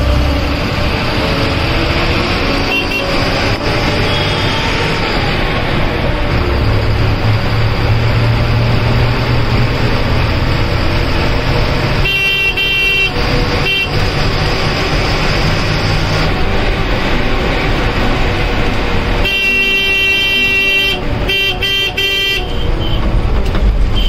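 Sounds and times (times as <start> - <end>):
bus engine droning: 0.0 - 24.0
vehicle horn: 2.4 - 5.1, 11.8 - 14.6, 19.2 - 23.2.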